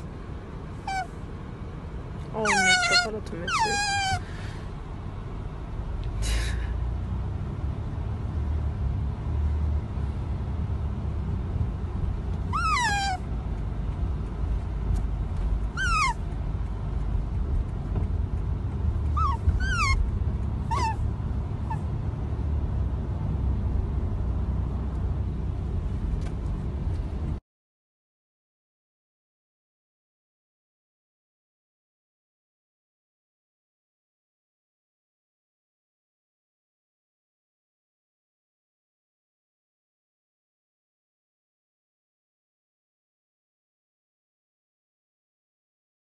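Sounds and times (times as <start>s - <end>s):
low steady rumble: 0.0s - 27.4s
otter squeaking: 0.9s - 1.1s, 2.4s - 4.2s, 12.5s - 13.2s, 15.7s - 16.2s, 19.1s - 20.1s, 20.7s - 21.0s.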